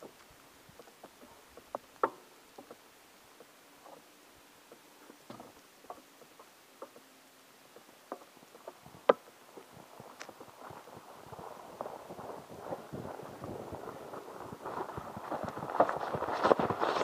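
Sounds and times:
light clicks and taps: 0:04.7 - 0:07.1.

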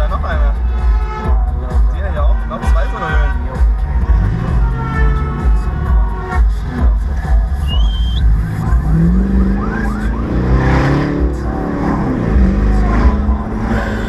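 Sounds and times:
car engine on the move: 0:00.0 - 0:14.0
heavy low road rumble: 0:00.0 - 0:14.0
cars passing close by: 0:03.4 - 0:14.0.

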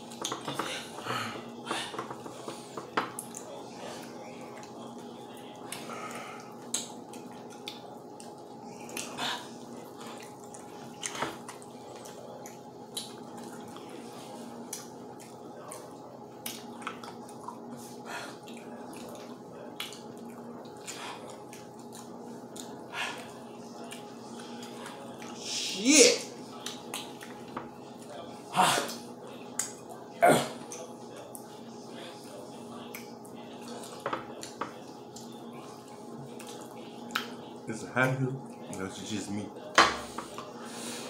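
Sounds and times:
steady background hum: 0:00.0 - 0:41.0
chewing and lip smacking: 0:02.4 - 0:14.0, 0:14.6 - 0:25.4, 0:26.5 - 0:28.2, 0:28.9 - 0:30.0, 0:32.8 - 0:37.4.

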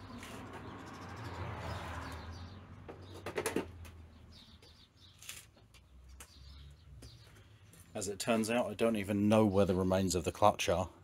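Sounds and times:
sharp clacks and knocks: 0:02.8 - 0:04.0.

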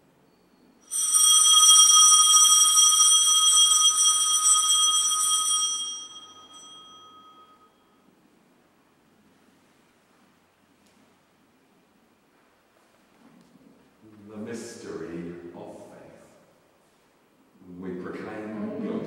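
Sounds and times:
altar bells ringing: 0:00.8 - 0:08.0.

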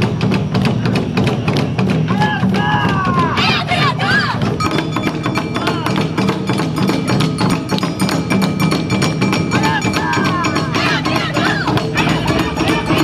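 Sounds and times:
barrel drums beating fast rhythm: 0:00.0 - 0:13.0
clicking metallic beat: 0:00.0 - 0:13.0
wavering high pitched notes: 0:04.4 - 0:13.0.

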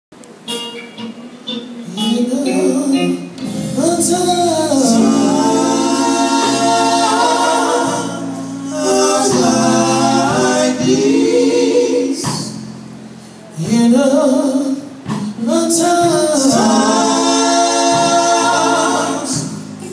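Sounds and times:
male vocal group singing harmony: 0:02.2 - 0:12.6, 0:13.5 - 0:19.9.

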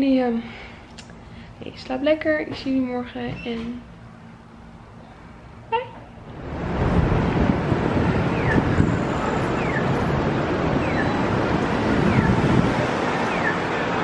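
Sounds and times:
city street traffic: 0:00.0 - 0:14.0
wind on microphone: 0:06.3 - 0:14.0
high falling chirp: 0:10.7 - 0:11.3.

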